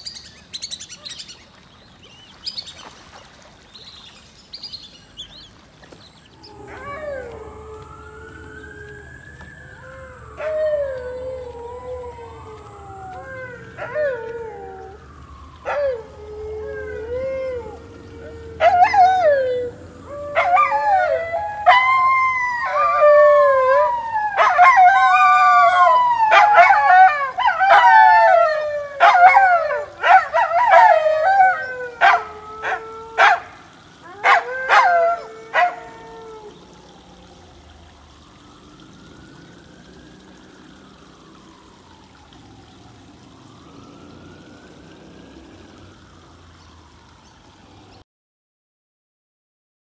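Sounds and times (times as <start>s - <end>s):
dogs howling: 6.4s - 37.7s
dogs yelping: 29.0s - 36.2s.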